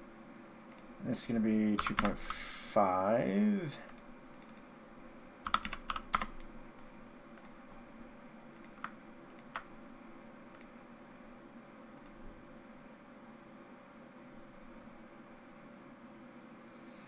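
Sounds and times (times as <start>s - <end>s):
faint steady hum: 0.0s - 17.0s
keyboard keystrokes: 1.8s - 2.2s, 5.4s - 6.5s.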